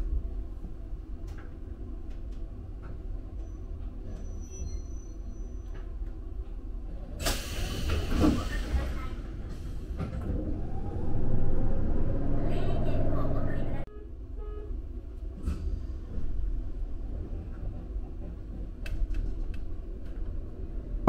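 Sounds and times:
train interior rumble: 0:00.0 - 0:21.0
faint high squeal: 0:03.4 - 0:05.8.

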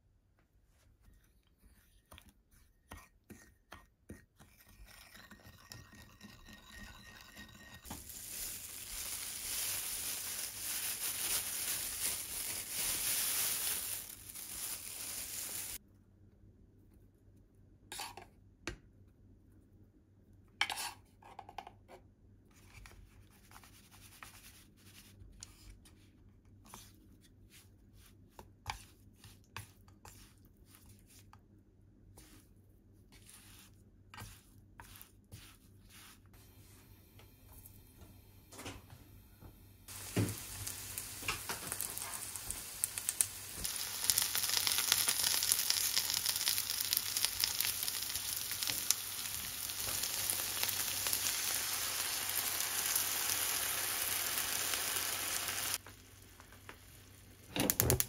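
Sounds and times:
metal spoon scraping glass bowl: 0:04.4 - 0:07.9.

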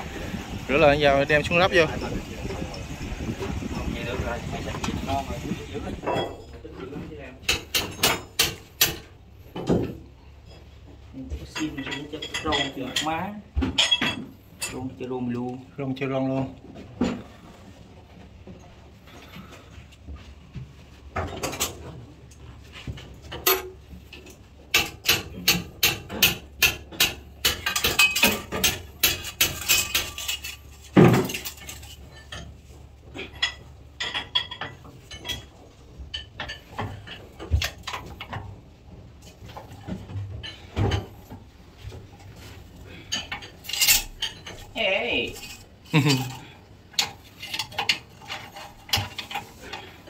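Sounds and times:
metal tools clinking on metal: 0:11.4 - 0:15.1, 0:23.3 - 0:38.4, 0:42.9 - 0:50.0.

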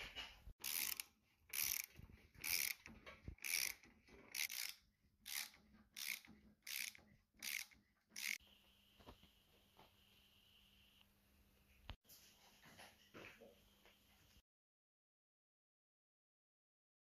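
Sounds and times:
ratchet wrench rasping: 0:00.6 - 0:08.4.

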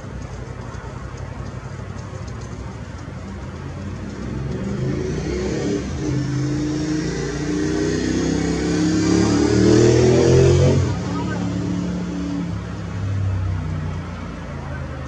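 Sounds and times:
city traffic: 0:00.0 - 0:15.0
vehicle engine accelerating past: 0:03.8 - 0:15.0.

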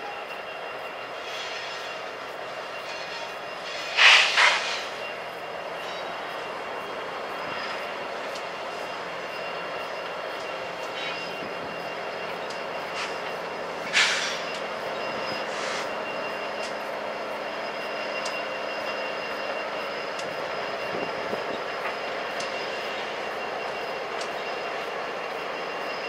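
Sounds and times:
diesel locomotive engine drone: 0:00.0 - 0:26.0
train rolling past: 0:00.0 - 0:26.0
loud hiss: 0:03.1 - 0:05.1, 0:13.8 - 0:14.5.

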